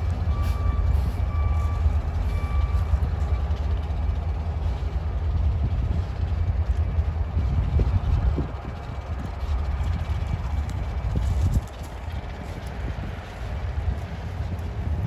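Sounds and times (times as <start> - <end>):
vehicle reversing beeper: 0.0 - 4.5
diesel locomotives rumbling: 0.0 - 15.0.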